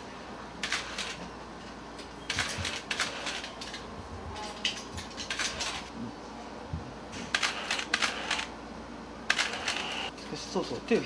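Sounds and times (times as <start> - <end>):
camera shutter clicking: 0.6 - 1.2, 2.3 - 3.5, 7.4 - 8.5, 9.3 - 10.1.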